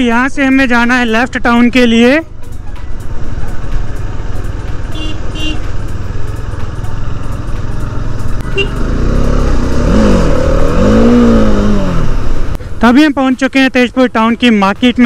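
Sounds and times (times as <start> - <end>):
motorcycle engine revving: 3.0 - 12.8
short horn beeps: 4.9 - 5.7, 8.4 - 8.9.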